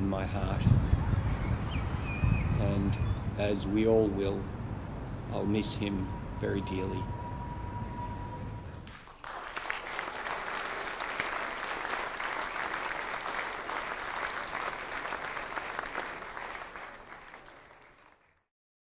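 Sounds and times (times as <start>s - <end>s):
audience applauding: 8.8s - 18.4s.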